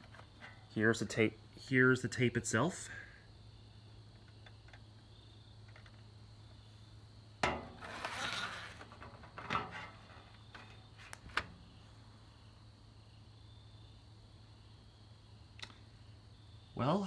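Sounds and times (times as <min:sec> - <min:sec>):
rustling: 0:07.4 - 0:11.5.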